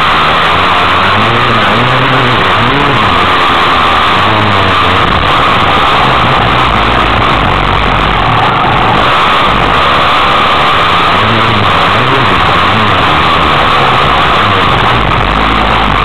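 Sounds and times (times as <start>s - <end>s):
dirt bike engine revving: 0.0s - 16.0s
track noise: 0.0s - 16.0s
wind rushing: 4.2s - 16.0s.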